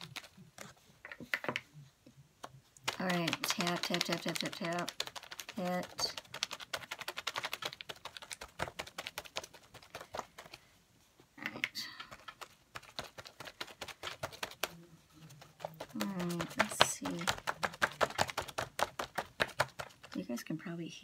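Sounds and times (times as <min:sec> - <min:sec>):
sponge tapping on paper: 0:02.8 - 0:10.6, 0:12.0 - 0:20.2.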